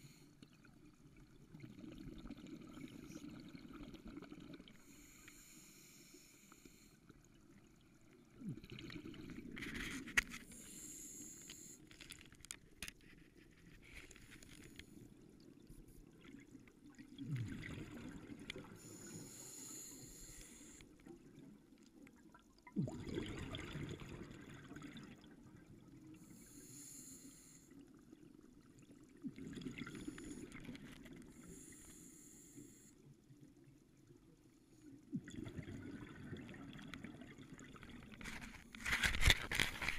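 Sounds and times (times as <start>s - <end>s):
bubbling rumble of exhaled air: 1.4s - 4.8s, 8.1s - 9.9s, 16.4s - 19.0s, 22.6s - 26.1s, 28.0s - 31.7s, 35.2s - 38.4s
regulator inhale hiss: 4.8s - 7.0s, 10.5s - 11.8s, 18.8s - 20.8s, 26.2s - 27.8s, 31.4s - 33.0s.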